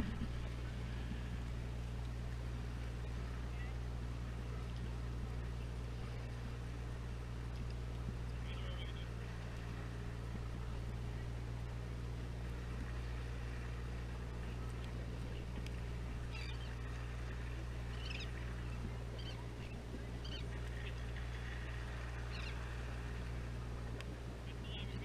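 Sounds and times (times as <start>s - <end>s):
boat engine drone: 0.0s - 25.0s
seagulls crying: 16.2s - 16.8s, 17.8s - 21.5s, 22.1s - 22.7s.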